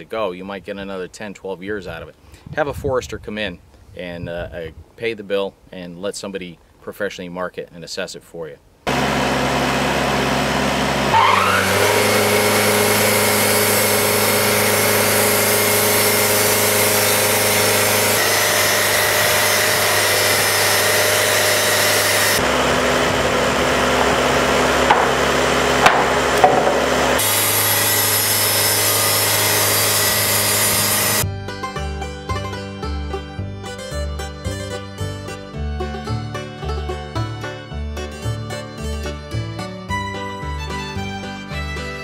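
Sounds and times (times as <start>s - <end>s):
saw blade cutting wood: 8.9s - 31.3s
sawmill engine droning: 8.9s - 33.0s
short knocks: 24.8s - 27.2s.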